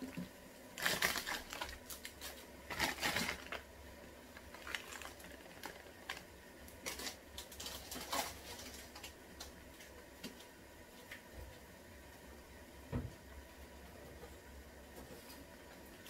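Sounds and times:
packet contents ticking and rustling: 0:00.0 - 0:10.5.

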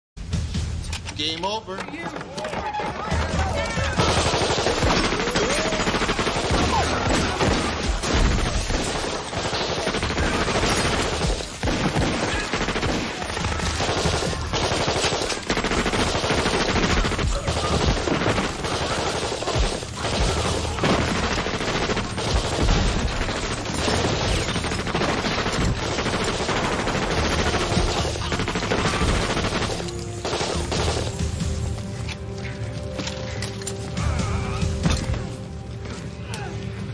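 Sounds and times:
automatic gunfire: 0:03.8 - 0:31.2.

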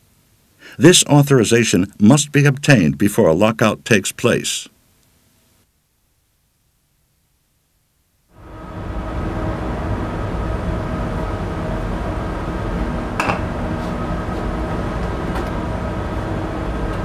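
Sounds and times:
machinery drone: 0:08.4 - 0:17.0.

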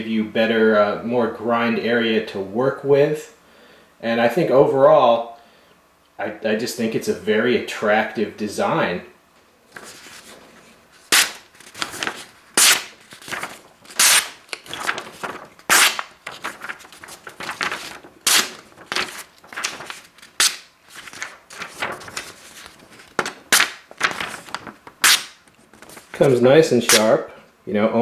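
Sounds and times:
knife slicing paper: 0:11.0 - 0:27.1.

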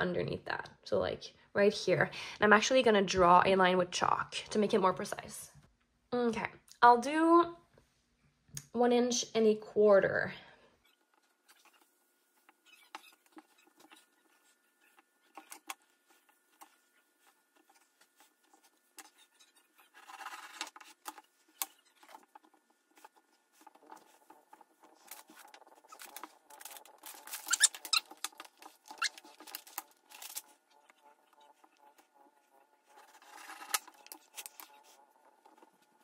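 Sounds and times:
brief squeaks: 0:27.3 - 0:28.1.

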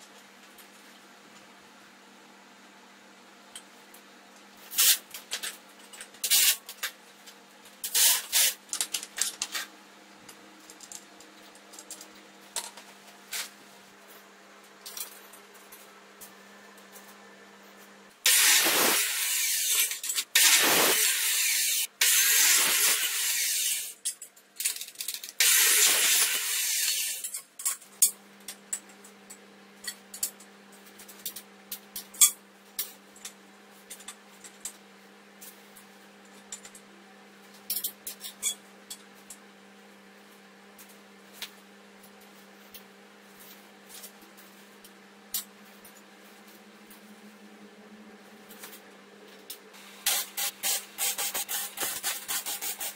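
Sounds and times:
harsh hissing and scraping: 0:18.3 - 0:23.8
metal parts and tools clicking: 0:18.3 - 0:29.0.

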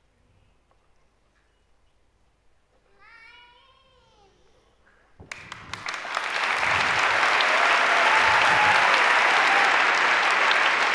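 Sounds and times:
audience applauding: 0:05.3 - 0:10.9.

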